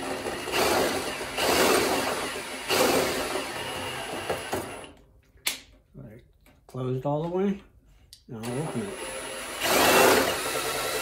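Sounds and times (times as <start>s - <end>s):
cordless drill whirring: 0.0s - 5.0s, 8.4s - 11.0s.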